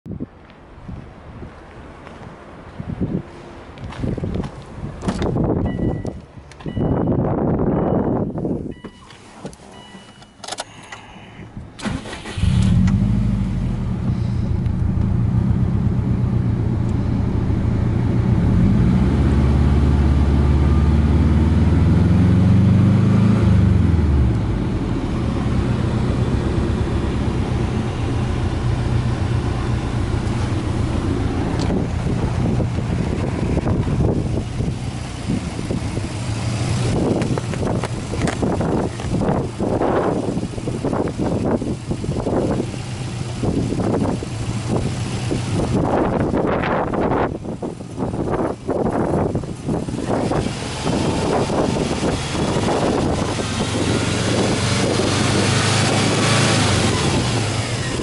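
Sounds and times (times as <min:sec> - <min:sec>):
turbocharged car engine revving: 0:11.8 - 0:47.4, 0:48.0 - 0:58.0.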